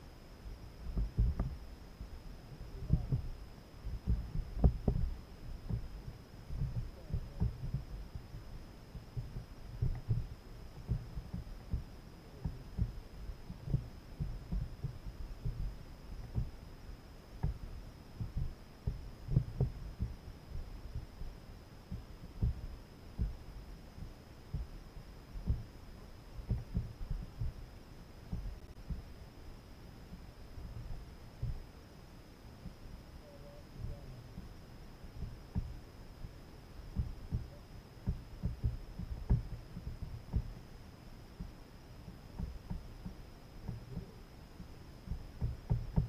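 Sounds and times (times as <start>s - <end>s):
faint high whine: 0.0s - 46.0s
low thumps on kayak hull: 0.8s - 2.2s, 2.8s - 16.6s, 17.4s - 25.8s, 26.4s - 27.6s, 28.3s - 29.2s, 30.1s - 31.7s, 35.2s - 35.8s, 36.9s - 40.7s, 41.4s - 46.0s.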